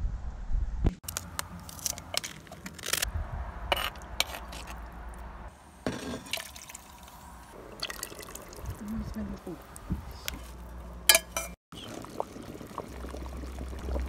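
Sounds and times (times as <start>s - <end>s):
metal spoon clinking on bowls: 11.1s - 11.6s.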